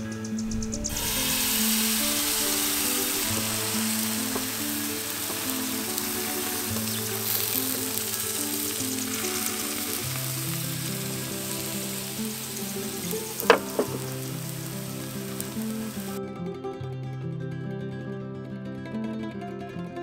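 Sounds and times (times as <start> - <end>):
batter sizzling in a pan: 0.6 - 16.2.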